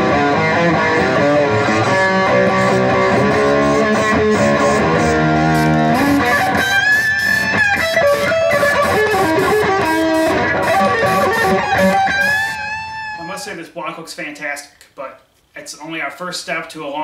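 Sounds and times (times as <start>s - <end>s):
electric guitar music: 0.0s - 13.6s.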